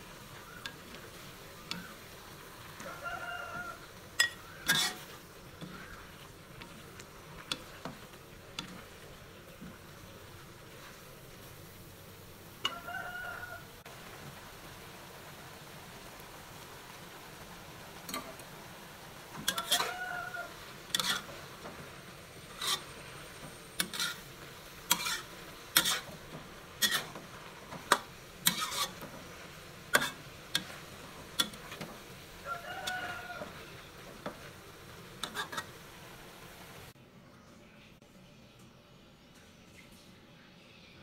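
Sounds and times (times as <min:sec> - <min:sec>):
spatula scraping a wok: 0:00.0 - 0:13.4, 0:18.0 - 0:18.5, 0:19.2 - 0:36.4
food sizzling: 0:00.0 - 0:37.0.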